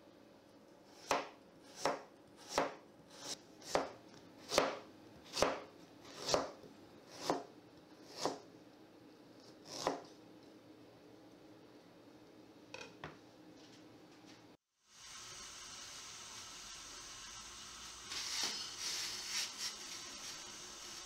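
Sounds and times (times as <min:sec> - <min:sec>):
knife slicing ginger on board: 0:01.0 - 0:08.4, 0:09.6 - 0:10.0.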